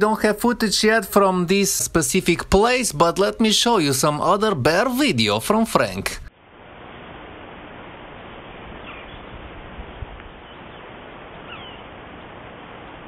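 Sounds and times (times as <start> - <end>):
steady dull hiss: 0.0 - 13.0
faint birds calling: 8.8 - 9.4, 10.3 - 12.3.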